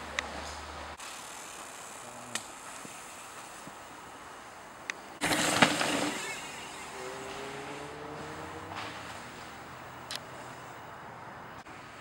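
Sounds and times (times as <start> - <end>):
bike tyres crunching on loose rock: 5.2 - 6.6.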